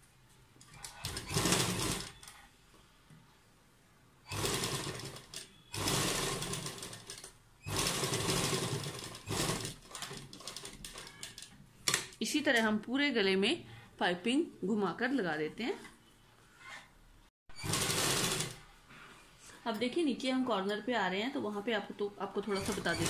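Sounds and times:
sewing machine stitching: 0:00.7 - 0:02.4, 0:04.3 - 0:11.5, 0:17.5 - 0:18.7, 0:22.4 - 0:23.0.

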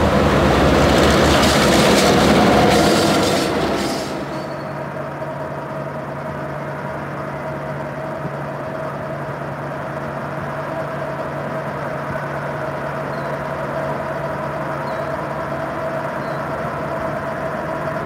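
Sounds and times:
diesel locomotive engine drone: 0:00.0 - 0:18.0
passing train: 0:00.0 - 0:18.0.

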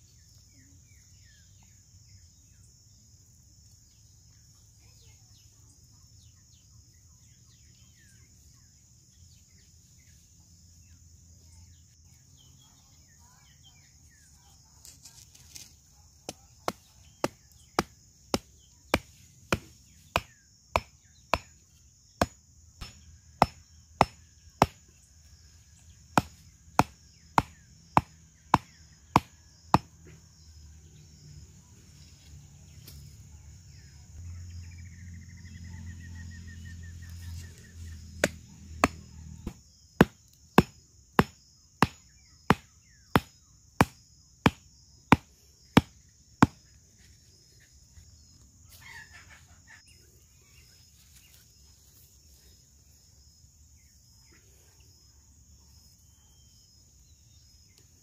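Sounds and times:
insects droning: 0:00.0 - 0:58.0
stake hammered into ground: 0:16.3 - 0:21.6, 0:22.2 - 0:24.9, 0:26.2 - 0:29.9, 0:38.2 - 0:46.6.

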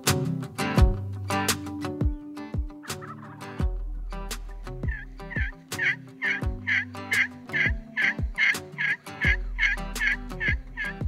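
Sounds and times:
turkey call raspy yelps: 0:02.9 - 0:03.4, 0:04.9 - 0:11.0.

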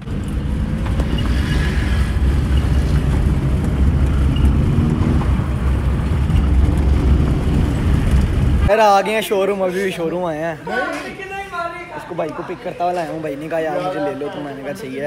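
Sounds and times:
car engine and road noise: 0:00.0 - 0:10.5.

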